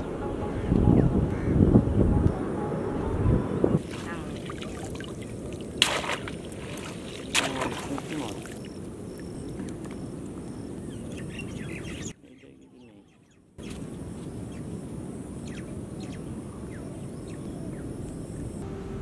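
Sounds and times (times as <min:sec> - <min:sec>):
small birds chirping: 0:03.8 - 0:14.8, 0:15.4 - 0:18.6.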